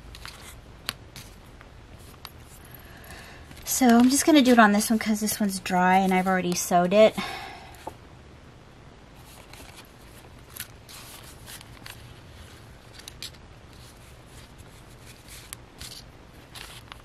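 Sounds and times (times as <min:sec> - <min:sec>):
paper and card rustling: 0:00.1 - 0:07.1, 0:09.2 - 0:17.0.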